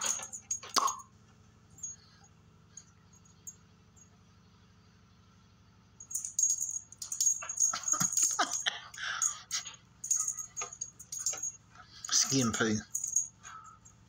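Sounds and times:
cat toy jingling and rattling: 0.0 - 1.0, 6.0 - 13.5.

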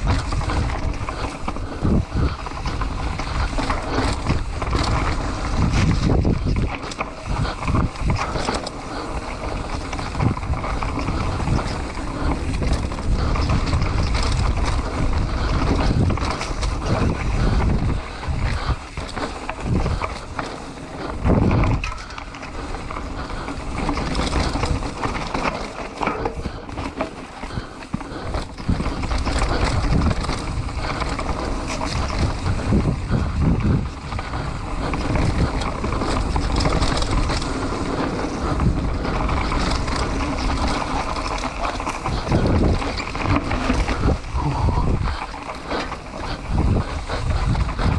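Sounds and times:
bike rattling: 0.0 - 47.9
bike tyres rolling: 0.0 - 47.9
wind on microphone: 0.0 - 47.9.

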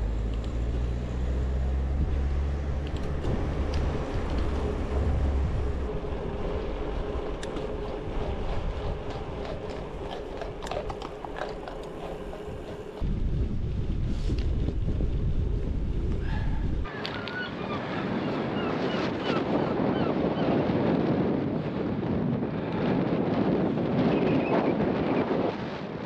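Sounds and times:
wind buffeting microphone: 0.0 - 26.0
bicycle tyre noise: 1.1 - 16.9.

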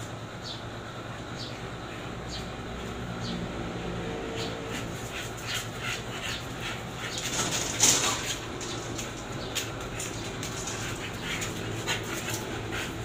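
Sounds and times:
dogs scuffing: 4.7 - 13.0.

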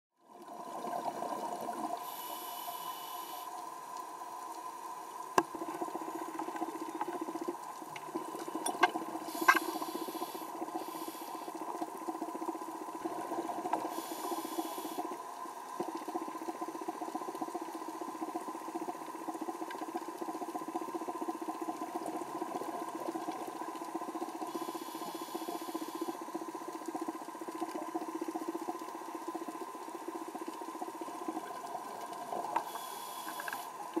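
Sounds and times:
underwater steady hum: 0.2 - 34.0
brief hissing: 9.3 - 11.4.

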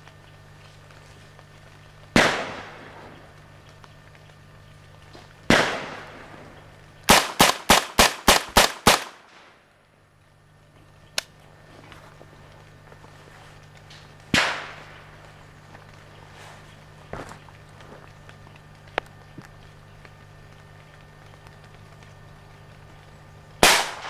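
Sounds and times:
rifle shots with echo: 2.1 - 3.2, 5.5 - 6.4, 7.1 - 9.6, 14.3 - 15.2, 23.6 - 24.0.

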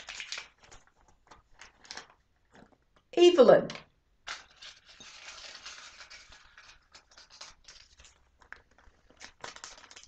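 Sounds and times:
paper slips rustling: 3.4 - 10.0.

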